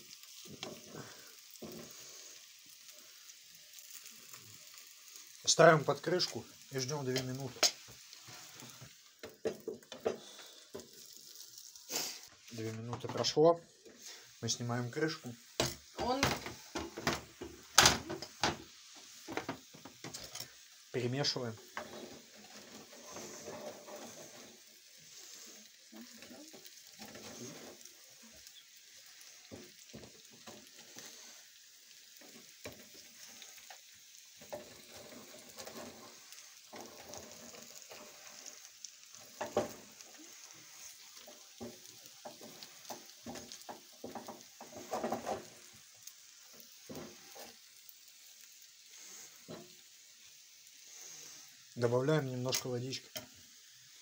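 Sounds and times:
dumplings sizzling in a pan: 0:00.0 - 0:54.0
wooden spatula scraping pan: 0:21.5 - 0:31.5, 0:34.4 - 0:45.7, 0:46.4 - 0:47.6.

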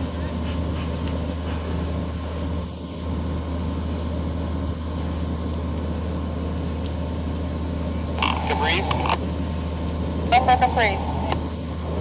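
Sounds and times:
fire engine pump droning: 0:00.0 - 0:12.0
noisy hiss: 0:07.8 - 0:12.0.

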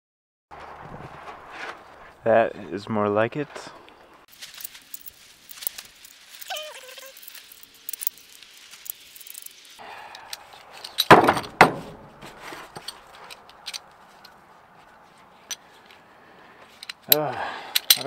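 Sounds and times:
steel parts clicking and clinking: 0:04.3 - 0:11.5, 0:12.7 - 0:14.4, 0:16.7 - 0:18.0.

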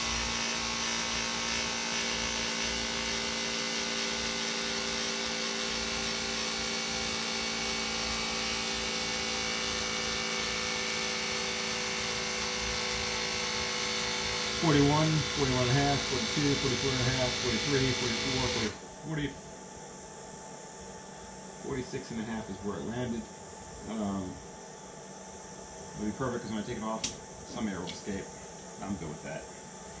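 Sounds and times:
electric tyre pump humming: 0:00.0 - 0:18.9.

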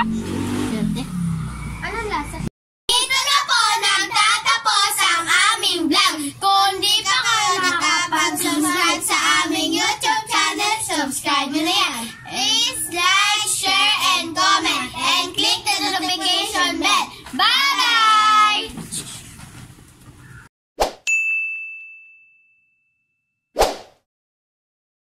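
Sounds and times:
children singing loudly: 0:02.9 - 0:06.1, 0:06.8 - 0:18.7.

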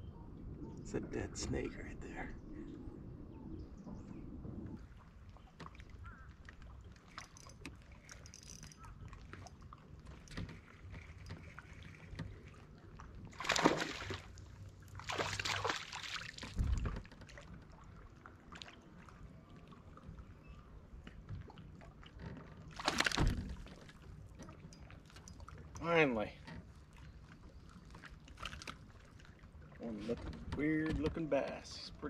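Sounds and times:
water sloshing against boat hull: 0:03.7 - 0:32.0
water splashes: 0:09.0 - 0:20.2, 0:21.4 - 0:26.1
fish thrashing at surface: 0:13.4 - 0:14.3, 0:22.8 - 0:23.4.

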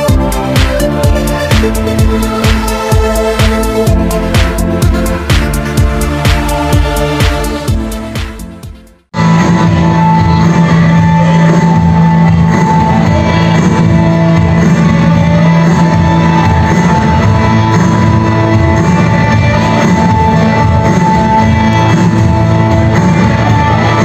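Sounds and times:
women's choir singing: 0:00.0 - 0:07.8.

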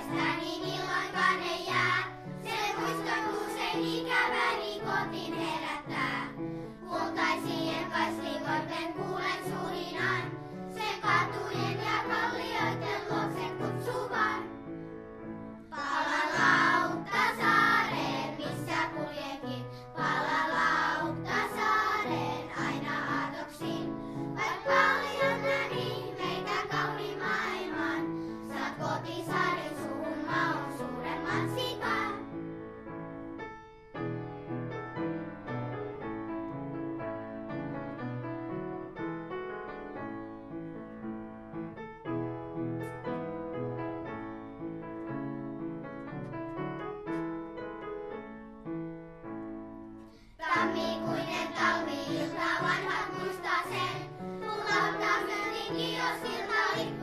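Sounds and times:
children's choir singing: 0:00.0 - 0:14.7, 0:15.6 - 0:32.4, 0:50.3 - 0:57.0.

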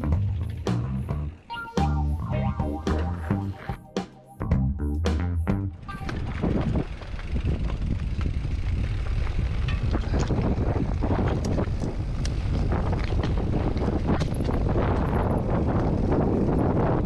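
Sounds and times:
bike clicks and rattles: 0:00.0 - 0:01.5, 0:05.9 - 0:17.0
wind rumbling on microphone: 0:05.7 - 0:17.0
tyres rolling over dirt: 0:05.8 - 0:16.9.

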